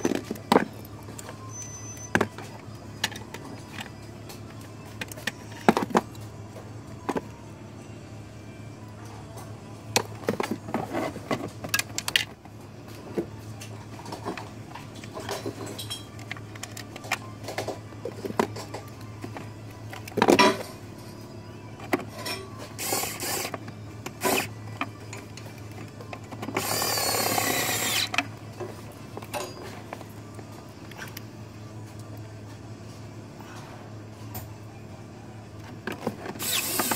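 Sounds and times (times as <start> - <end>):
cordless screwdriver whine: 22.8 - 23.6, 26.5 - 28.2, 36.4 - 36.9.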